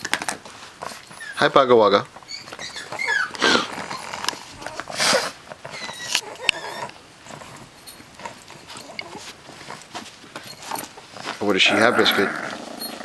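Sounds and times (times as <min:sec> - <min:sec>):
dog high-pitched squeak: 0:01.1 - 0:01.6, 0:02.2 - 0:04.0, 0:05.7 - 0:06.9
dog breathy burst: 0:03.3 - 0:04.0, 0:04.9 - 0:05.4.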